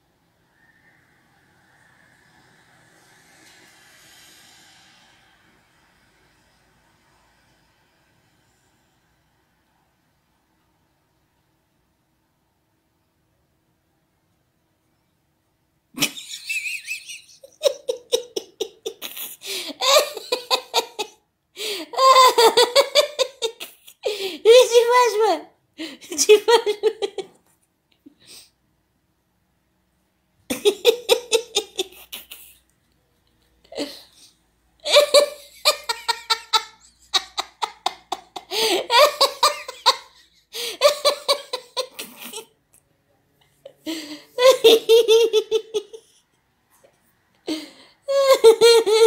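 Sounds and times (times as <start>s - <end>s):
person giggling: 16.0s - 24.6s, 25.8s - 27.4s, 30.5s - 32.6s, 33.7s - 42.5s, 43.6s - 46.2s, 47.5s - 49.0s
person laughing: 16.0s - 24.6s, 25.8s - 27.4s, 30.5s - 32.6s, 34.8s - 42.5s, 43.6s - 46.1s, 47.5s - 49.0s.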